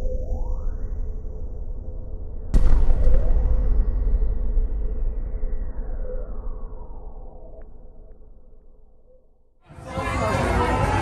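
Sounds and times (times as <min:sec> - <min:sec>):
loud crowd noise: 0:09.7 - 0:11.0.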